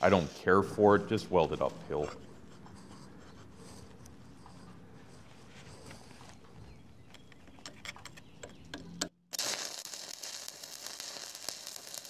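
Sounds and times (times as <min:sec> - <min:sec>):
welding arc crackling: 0:09.3 - 0:12.0.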